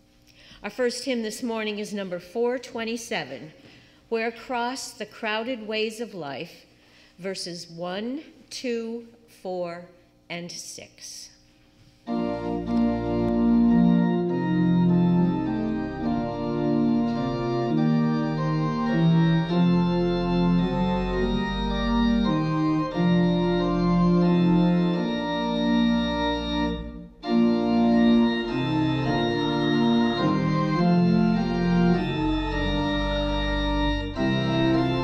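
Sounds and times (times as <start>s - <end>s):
church organ playing chords: 12.0s - 35.0s.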